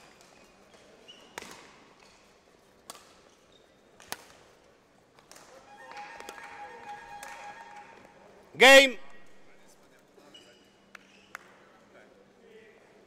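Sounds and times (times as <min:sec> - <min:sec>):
rackets hitting shuttlecock: 0:05.3 - 0:08.1
shoes squeaking: 0:05.5 - 0:08.5.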